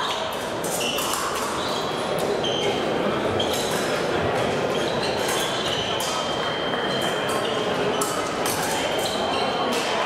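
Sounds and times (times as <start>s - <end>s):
shoes squeaking: 0.0s - 9.9s
large room din: 0.0s - 10.0s.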